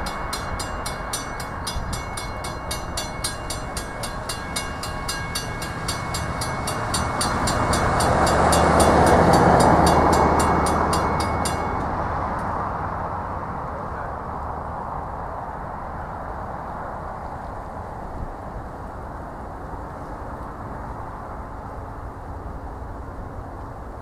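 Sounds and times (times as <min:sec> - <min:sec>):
crossing warning bells ringing: 0:00.0 - 0:13.1
truck engine and tyres: 0:00.0 - 0:24.0.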